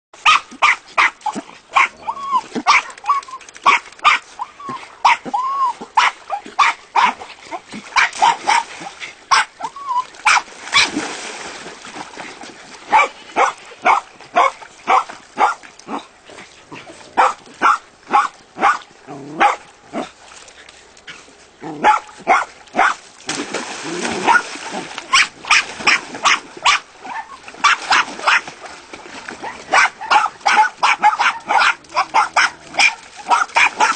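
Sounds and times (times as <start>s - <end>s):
dogs barking: 0.2s - 3.0s, 6.0s - 7.2s, 9.3s - 9.5s, 12.9s - 15.6s, 17.2s - 18.8s, 19.4s - 20.1s, 21.7s - 23.0s, 24.2s - 24.4s, 25.1s - 28.5s, 29.4s - 33.9s.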